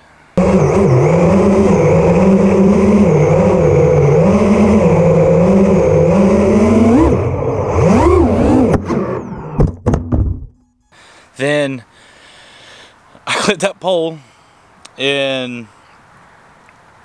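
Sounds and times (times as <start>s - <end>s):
quadcopter motors whining: 0.4s - 9.7s.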